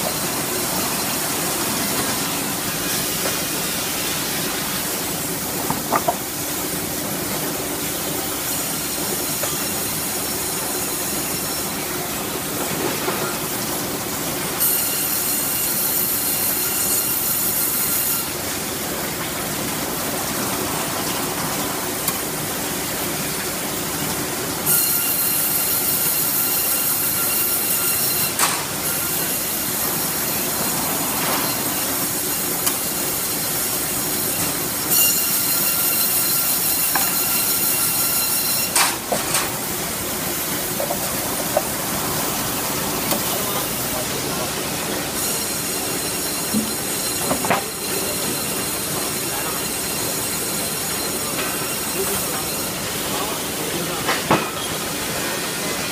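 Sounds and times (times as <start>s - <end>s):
sawmill running: 0.0s - 55.9s
saw squealing whine: 34.3s - 38.8s, 45.2s - 53.4s.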